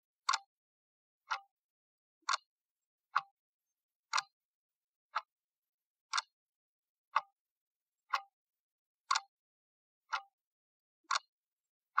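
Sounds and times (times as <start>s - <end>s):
clock ticks: 0.2s - 0.5s, 1.2s - 1.5s, 2.2s - 2.5s, 3.1s - 3.4s, 4.1s - 4.4s, 5.1s - 5.3s, 6.1s - 6.4s, 7.1s - 7.4s, 8.1s - 8.4s, 9.1s - 9.4s, 10.1s - 10.4s, 11.1s - 11.3s.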